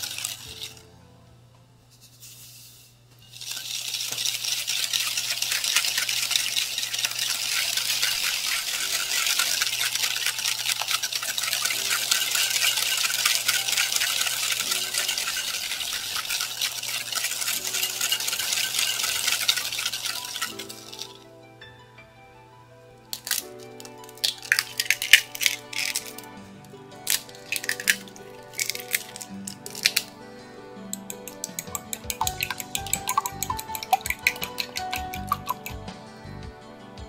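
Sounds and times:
whisk scraping a glass bowl: 0:03.3 - 0:21.2, 0:31.0 - 0:35.8.

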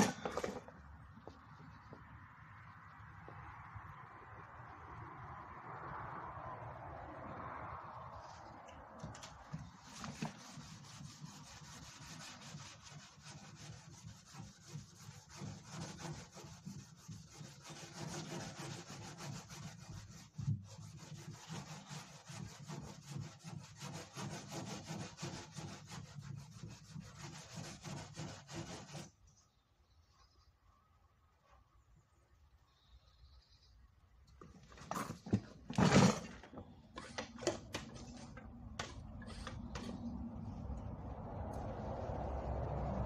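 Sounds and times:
hand sanding scratching strokes: 0:09.5 - 0:29.2.

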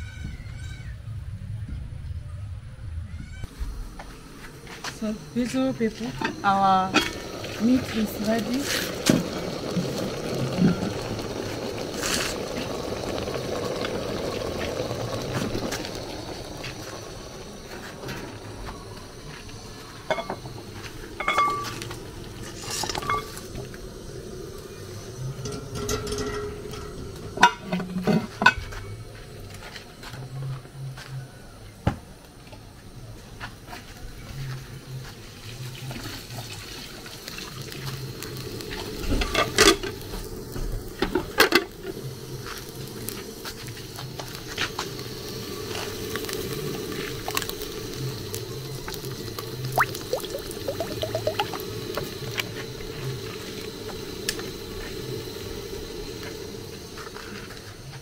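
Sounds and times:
metal pots clanking: 0:06.1 - 0:13.3, 0:20.0 - 0:23.7, 0:25.4 - 0:28.8
liquid sloshing and bubbling: 0:06.9 - 0:18.5, 0:35.9 - 0:55.4.

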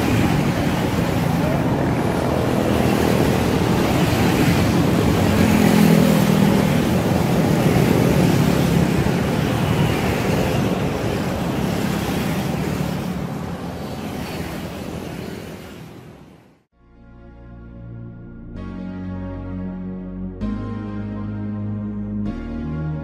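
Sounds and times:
motor scooters passing: 0:00.0 - 0:16.6.

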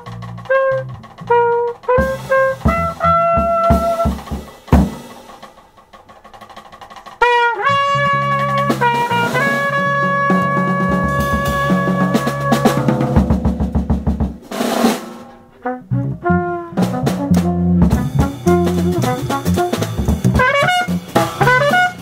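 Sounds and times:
cornet playing held notes: 0:00.0 - 0:04.4, 0:07.2 - 0:13.2, 0:15.5 - 0:22.0
electric bass: 0:00.0 - 0:05.0, 0:07.6 - 0:14.2, 0:15.6 - 0:22.0
drum kit: 0:00.0 - 0:22.0.

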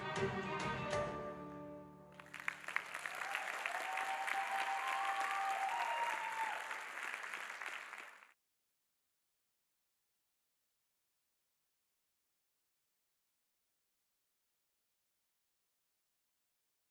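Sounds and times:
audience clapping and cheering: 0:02.2 - 0:08.4.

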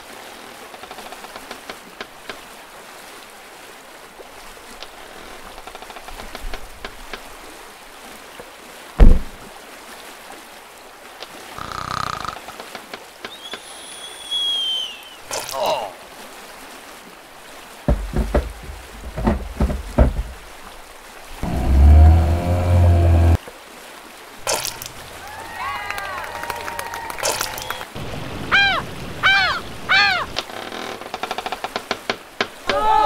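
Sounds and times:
loud thump: 0:09.0 - 0:09.4, 0:17.9 - 0:20.5, 0:21.4 - 0:23.4
water hiss: 0:11.2 - 0:16.4, 0:20.0 - 0:23.4
high whistling tone: 0:13.3 - 0:15.2
short hum: 0:21.4 - 0:23.4.

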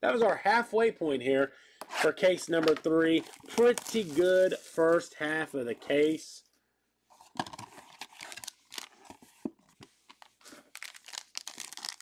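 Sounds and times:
packaging crinkling and tearing: 0:03.2 - 0:04.9, 0:07.4 - 0:09.4, 0:10.1 - 0:12.0.

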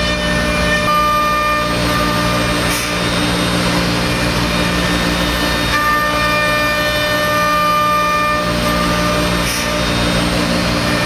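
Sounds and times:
end mill cutting wood hiss: 0:00.0 - 0:11.0
router spindle whine: 0:00.0 - 0:11.0.

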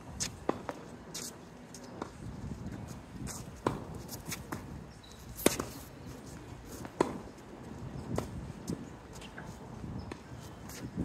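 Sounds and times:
racket striking tennis balls: 0:03.3 - 0:04.7, 0:05.3 - 0:05.9, 0:06.8 - 0:07.3.

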